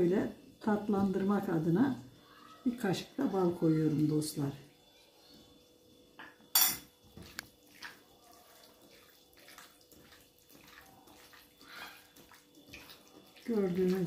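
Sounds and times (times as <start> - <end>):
wet squelches of mixing meat: 7.2 - 14.0.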